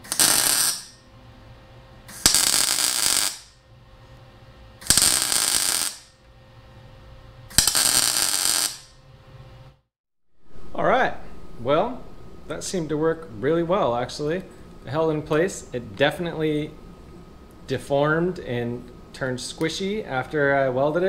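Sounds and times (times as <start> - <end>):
welding arc crackling: 0.0 - 1.0, 2.1 - 3.6, 4.8 - 6.2, 7.5 - 9.0
welder low hum: 0.0 - 21.0.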